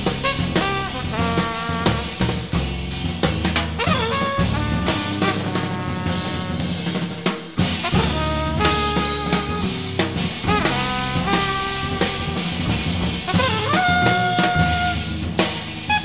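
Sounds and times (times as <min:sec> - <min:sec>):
drum kit: 0:00.0 - 0:16.0
low bass: 0:00.0 - 0:16.0
trumpet playing held notes: 0:00.2 - 0:02.3, 0:03.8 - 0:07.0, 0:07.8 - 0:16.0.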